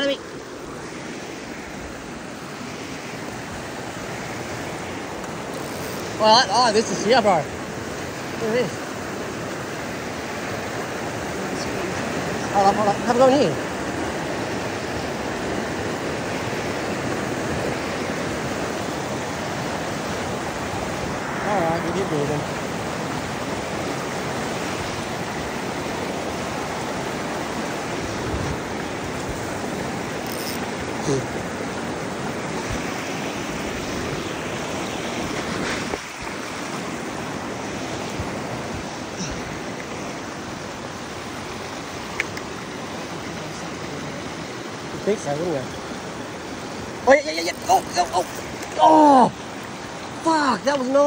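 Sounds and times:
creek water rushing: 0.0s - 51.0s
river flowing: 0.0s - 51.0s
sharp click: 42.1s - 42.5s.

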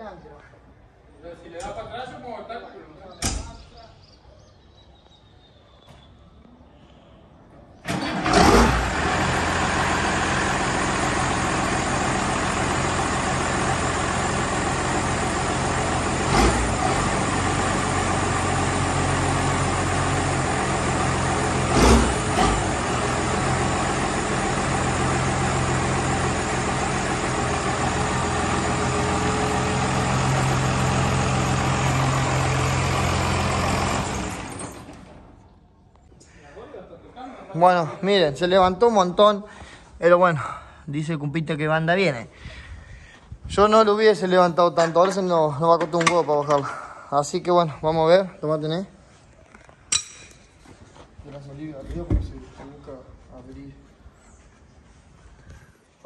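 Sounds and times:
tractor engine running: 7.8s - 35.5s.

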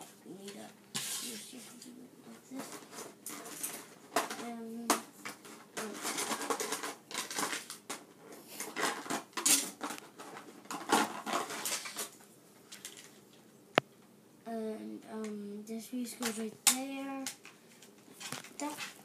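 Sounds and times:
plastic toy track clattering: 2.6s - 8.0s, 8.6s - 13.2s.

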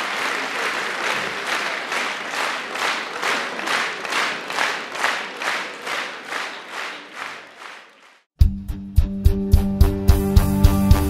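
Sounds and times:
audience clapping in unison: 0.0s - 8.3s.

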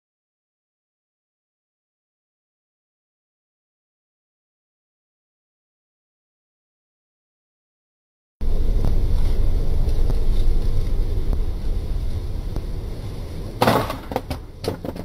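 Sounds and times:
steady low rumble: 8.4s - 15.0s.

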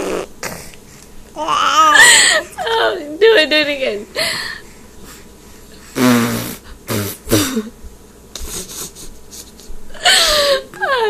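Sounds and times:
baby blowing raspberries: 0.0s - 0.8s, 5.8s - 7.7s.

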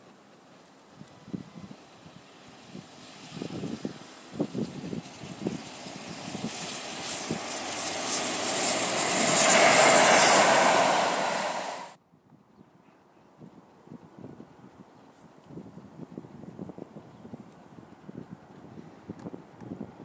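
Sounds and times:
steam train passing: 0.0s - 12.0s
faint wind: 0.0s - 20.0s.

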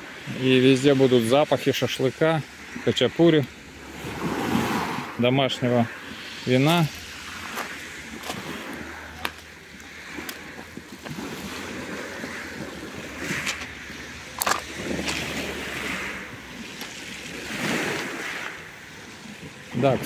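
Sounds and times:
small waves washing on shingle: 0.0s - 20.0s
footsteps crunching on pebbles: 7.5s - 8.5s.

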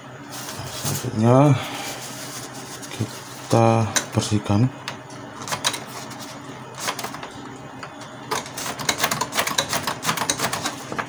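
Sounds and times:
tissue paper rubbing on roller: 0.2s - 3.8s
printer mechanism clicks: 6.8s - 11.0s.

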